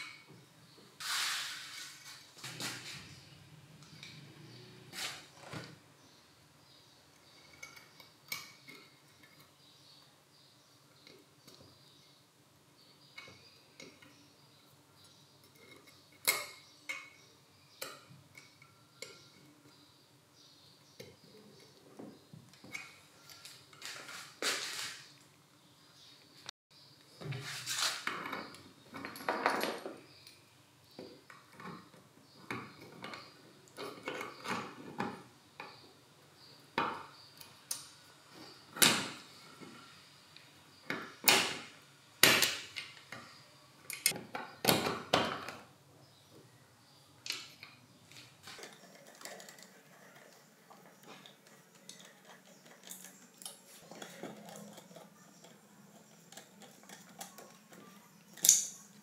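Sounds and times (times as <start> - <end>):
metal parts clinking and clicking: 56.3 - 59.0.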